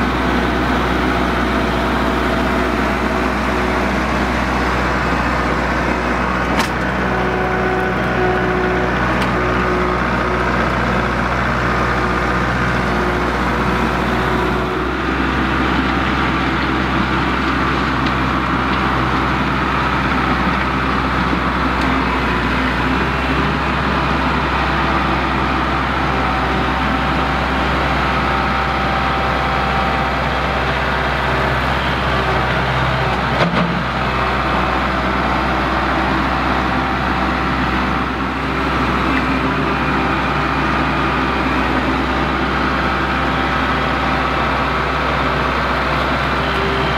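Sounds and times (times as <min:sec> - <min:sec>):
tractor diesel engine running: 0:00.0 - 0:46.9
clunk: 0:06.5 - 0:06.9, 0:33.1 - 0:33.9.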